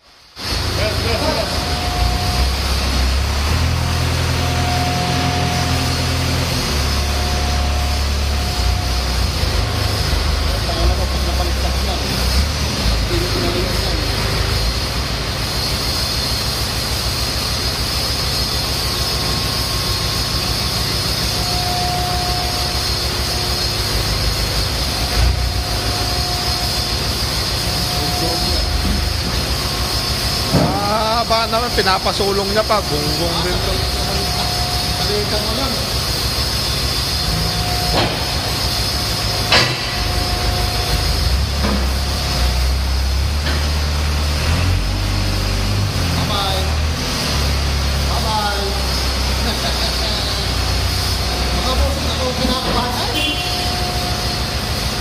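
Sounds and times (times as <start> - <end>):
faint steady whine: 0.0 - 44.3, 47.9 - 55.0
diesel engine running: 0.0 - 55.0
sharp metal knocks: 39.5 - 40.2.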